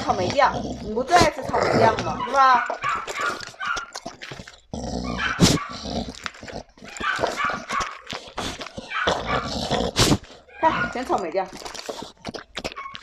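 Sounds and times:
dog whining and barking: 0:02.1 - 0:04.0, 0:05.0 - 0:05.8, 0:06.8 - 0:08.0, 0:08.8 - 0:11.0, 0:12.7 - 0:13.0.

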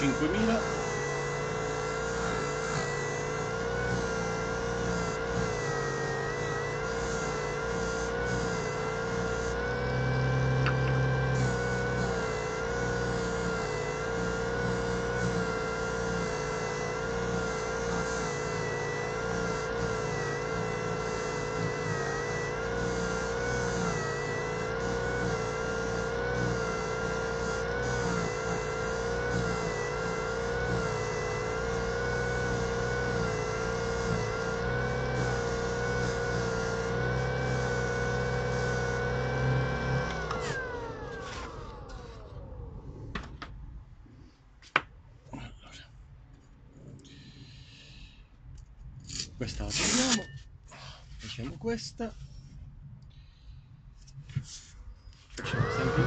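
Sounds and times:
soft hiss of sanding resin: 0:00.0 - 0:40.6, 0:53.3 - 0:56.0
disc sander motor whine: 0:00.0 - 0:43.6, 0:55.0 - 0:56.0.

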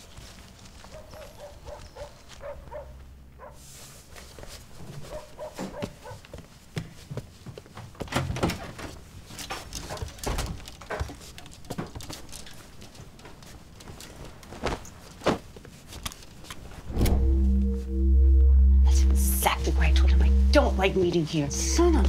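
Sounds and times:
clothes rustling: 0:11.0 - 0:17.2.

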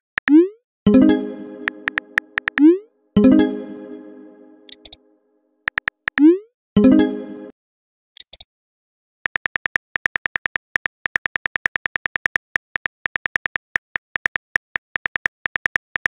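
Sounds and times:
keyboard key clicks: 0:01.6 - 0:02.7.

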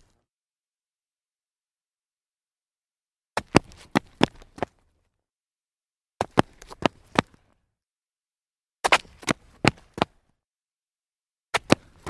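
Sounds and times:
sneakers scuffing on concrete: 0:03.4 - 0:04.7.

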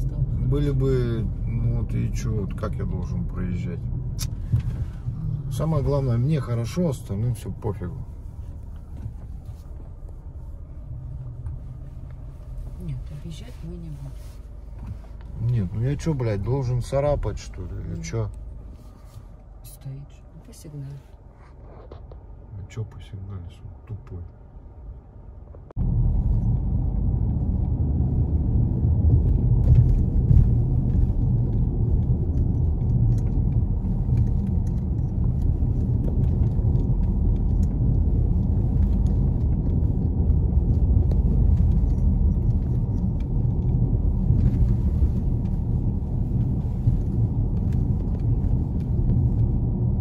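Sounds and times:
car engine running: 0:00.0 - 0:50.0
road noise: 0:00.0 - 0:50.0
faint rattles and ticks: 0:29.1 - 0:50.0.

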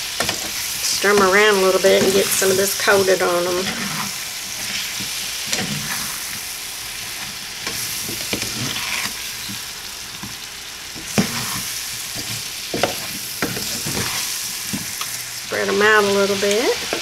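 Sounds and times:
apple slices sizzling in a pan: 0:00.0 - 0:17.0
spatula scraping and tapping pan: 0:07.6 - 0:09.6, 0:11.0 - 0:15.2.

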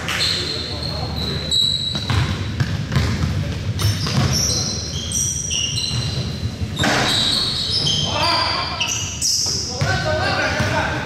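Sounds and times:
sneakers squeaking: 0:00.0 - 0:11.0
basketball bouncing: 0:01.9 - 0:04.6.

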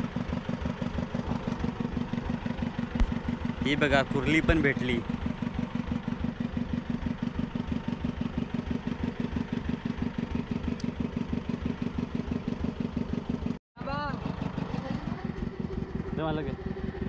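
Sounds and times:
boat engine thudding: 0:00.0 - 0:13.1.

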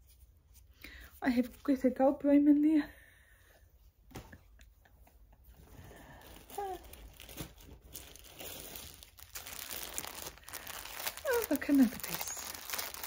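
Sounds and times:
plastic packaging crinkling: 0:06.2 - 0:13.0.

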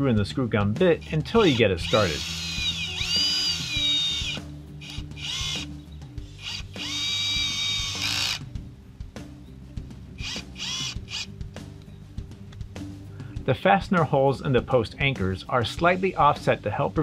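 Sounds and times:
drill driver motor whining: 0:01.0 - 0:05.7, 0:06.3 - 0:08.5, 0:10.2 - 0:11.3.

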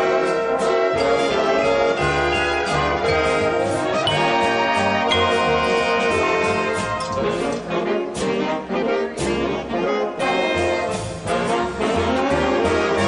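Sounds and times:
big band jazz waltz: 0:00.0 - 0:13.0
trombone phrases: 0:00.0 - 0:13.0
steady bass line: 0:01.4 - 0:07.6.

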